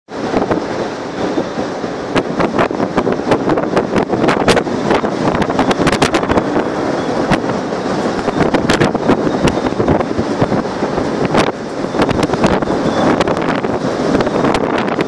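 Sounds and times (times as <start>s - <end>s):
wind blowing over microphone: 0.1s - 15.0s.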